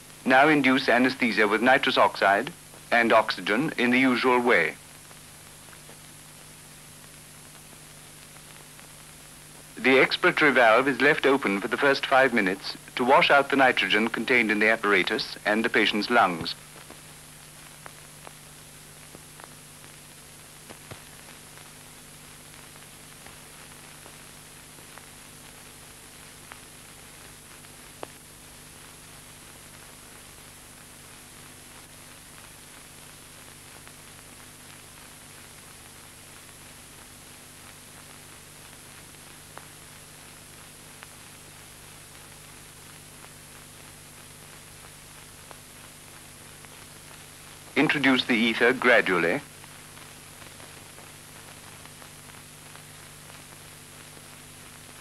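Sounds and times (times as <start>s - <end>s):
film soundtrack hiss and hum: 0.0s - 55.0s.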